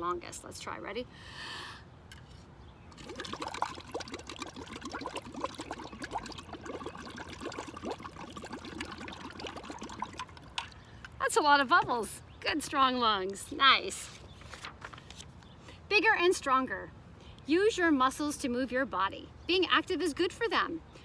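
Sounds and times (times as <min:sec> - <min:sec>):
breath: 0:01.1 - 0:01.9, 0:10.8 - 0:11.1, 0:17.2 - 0:17.4
bubbling through straw in water: 0:02.9 - 0:10.9.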